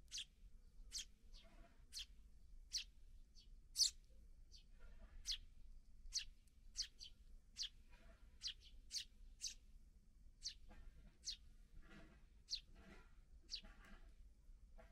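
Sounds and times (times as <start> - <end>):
sparrows chirping: 0.0 - 9.7, 10.4 - 14.1.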